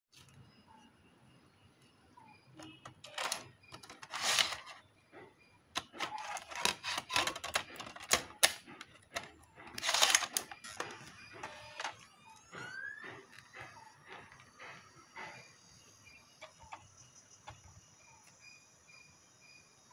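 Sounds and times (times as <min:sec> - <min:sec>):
disc tray clicks and clacks: 0:02.6 - 0:04.8, 0:05.8 - 0:15.3
disc drive spinning up whine: 0:05.8 - 0:19.9.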